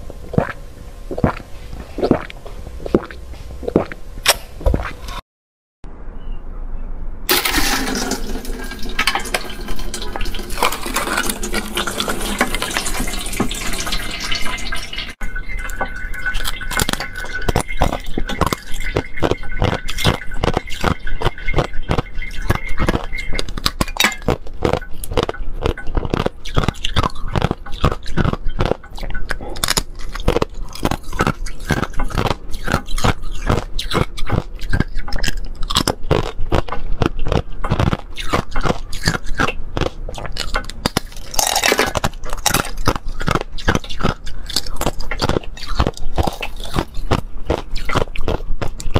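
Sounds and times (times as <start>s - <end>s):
liquid gushing into a bowl: 7.3s - 29.2s
ice shell cracking: 29.6s - 48.1s.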